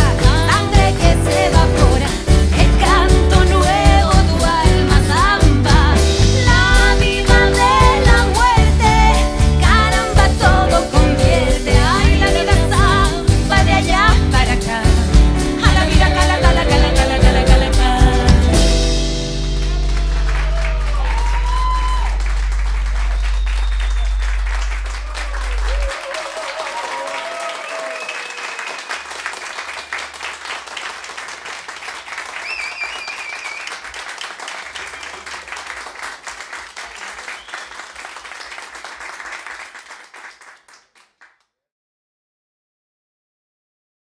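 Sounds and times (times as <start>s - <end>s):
audience shouting and cheering: 19.5s - 29.2s
audience applauding: 19.6s - 41.4s.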